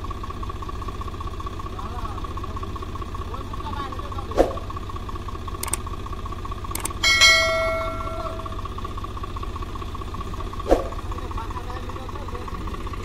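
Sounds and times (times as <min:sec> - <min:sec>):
tractor engine running: 0:00.0 - 0:13.0
light clicks: 0:05.6 - 0:05.8, 0:06.8 - 0:07.0
ringing metallic strike: 0:07.0 - 0:08.8.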